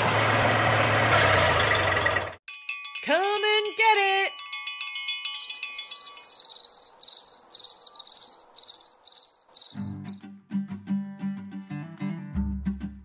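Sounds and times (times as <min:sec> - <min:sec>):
chime: 0:02.5 - 0:06.8
crickets chirping: 0:05.6 - 0:10.2
strummed acoustic guitar music: 0:09.8 - 0:13.0.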